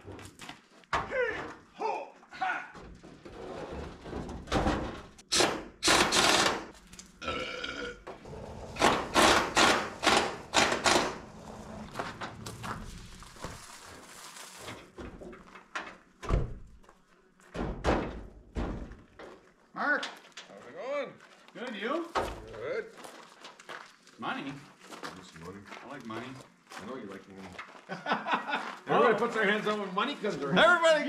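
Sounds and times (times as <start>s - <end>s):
sheet metal clunks and scraping: 2.8s - 5.2s.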